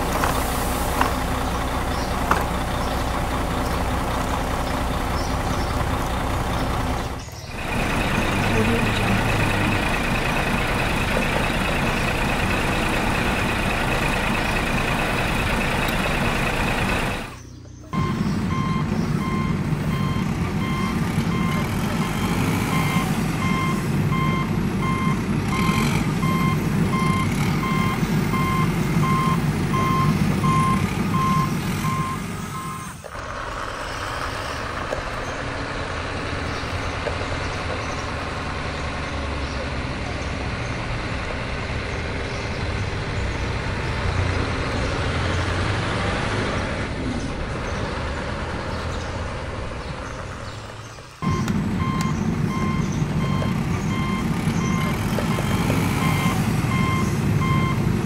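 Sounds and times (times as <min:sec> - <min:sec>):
reversing beeps: 0:17.9 - 0:33.0, 0:51.2 - 0:57.8.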